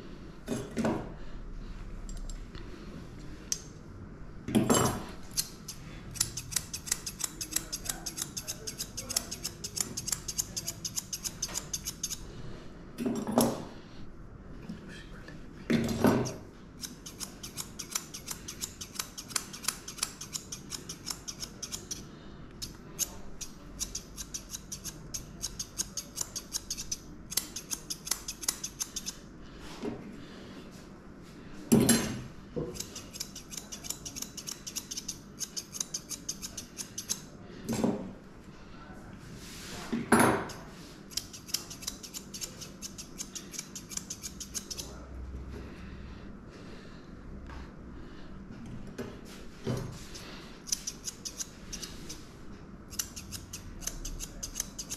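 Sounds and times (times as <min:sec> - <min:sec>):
grooming scissors snipping: 0:05.3 - 0:12.2, 0:16.2 - 0:22.0, 0:22.6 - 0:29.2, 0:32.7 - 0:37.2, 0:40.5 - 0:45.0, 0:50.6 - 0:52.2, 0:52.9 - 0:54.9.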